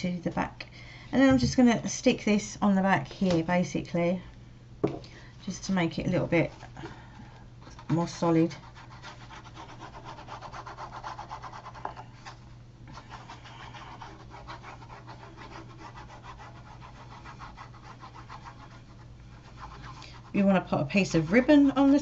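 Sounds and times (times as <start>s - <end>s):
glue stick rubbing on card: 8.6s - 12.0s.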